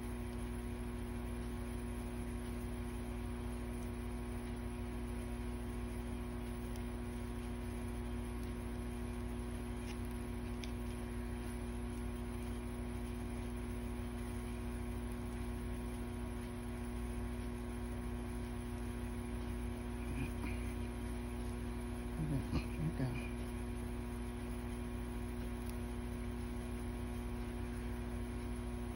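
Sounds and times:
electrical mains hum: 0.0s - 28.9s.

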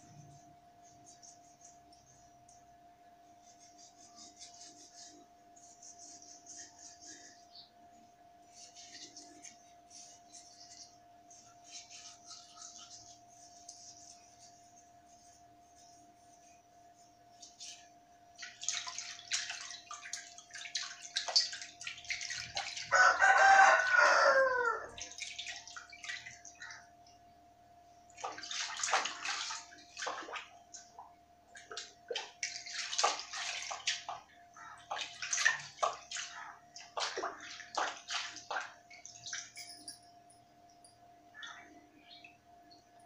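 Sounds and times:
water splashing in a basin: 18.4s - 24.0s, 24.8s - 26.8s, 28.1s - 39.6s
rooster crowing: 22.9s - 25.1s.

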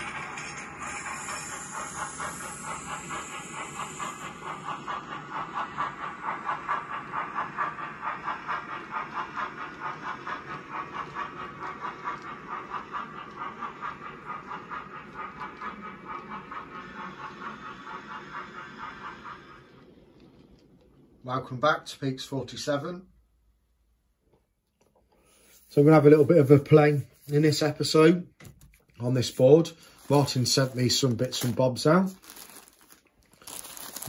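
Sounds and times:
steam hiss: 0.0s - 20.1s, 29.0s - 32.2s
model steam train chuffing: 0.0s - 23.9s, 25.2s - 34.0s.

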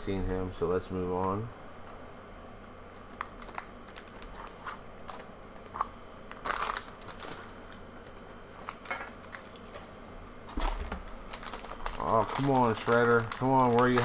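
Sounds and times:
foil wrapper crinkling: 3.1s - 9.8s, 10.5s - 14.0s.

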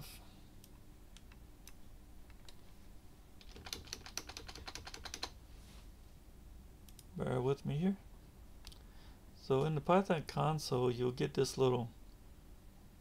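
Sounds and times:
computer keyboard typing: 3.4s - 5.4s.

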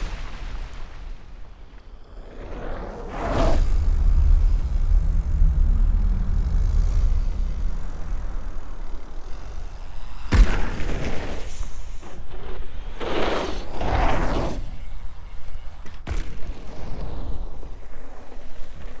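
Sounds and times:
bike landing thump: 9.5s - 19.0s
tyres rolling over dirt: 10.3s - 19.0s.

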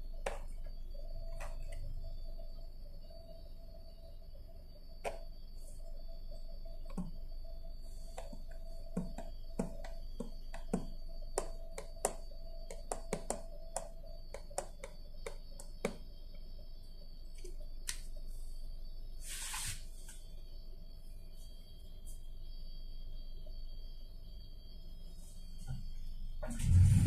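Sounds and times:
faint steady tone: 0.0s - 27.0s
short hiss: 19.2s - 20.2s.

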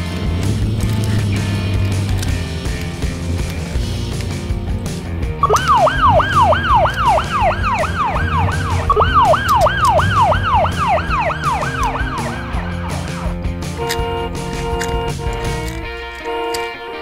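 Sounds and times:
police siren wailing: 5.4s - 15.7s.

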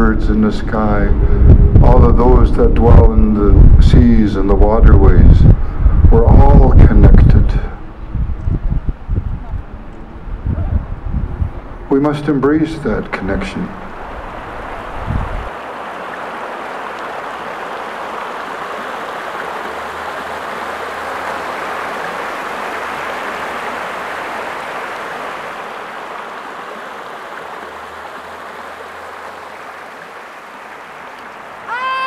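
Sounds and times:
water rushing over rocks: 12.7s - 32.0s.

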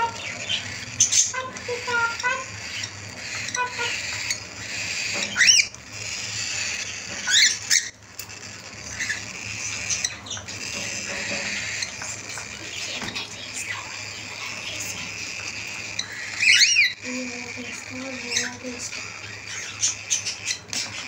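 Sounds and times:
cockatiel rising calls: 0.0s - 21.0s
high-pitched bird chatter: 0.0s - 21.0s
small clicks at seed dish: 8.1s - 8.4s, 10.3s - 13.4s.

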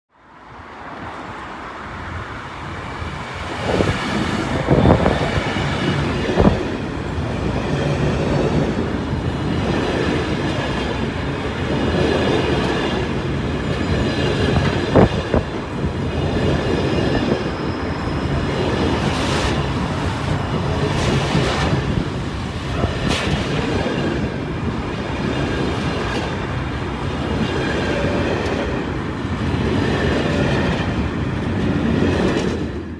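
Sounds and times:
faint high wheel squeal: 16.9s - 19.1s.

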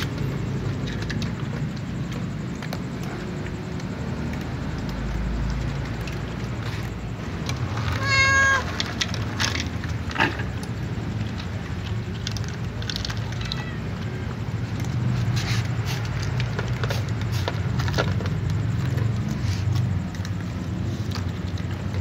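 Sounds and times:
cat meowing: 7.9s - 8.8s, 13.3s - 14.2s.

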